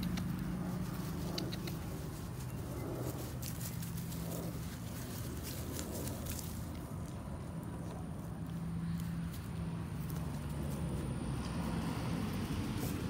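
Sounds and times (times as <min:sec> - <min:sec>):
low mechanical hum: 0:00.0 - 0:13.0
dogs scuffling in grass: 0:00.5 - 0:13.0.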